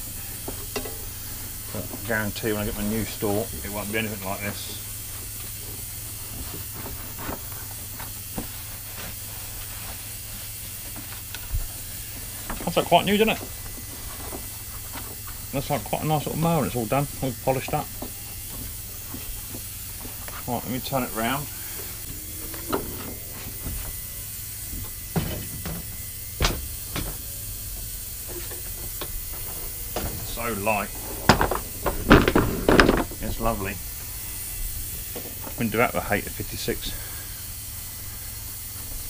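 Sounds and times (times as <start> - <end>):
steady hiss: 0.0 - 39.0
cloth rag wiping plastic: 6.2 - 11.3
low hum: 10.9 - 35.1
lawnmower knocking on workbench: 31.2 - 33.2.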